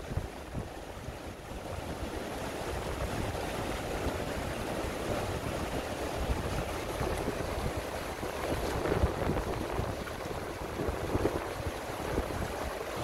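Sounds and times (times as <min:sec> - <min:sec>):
river rushing over rocks: 0:00.0 - 0:13.0
wind on microphone: 0:00.0 - 0:13.0.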